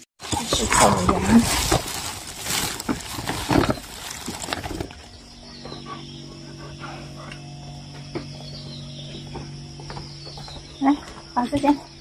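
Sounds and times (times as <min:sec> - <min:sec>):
plastic bag rustling: 0:00.0 - 0:05.2
steady low hum: 0:00.2 - 0:12.0.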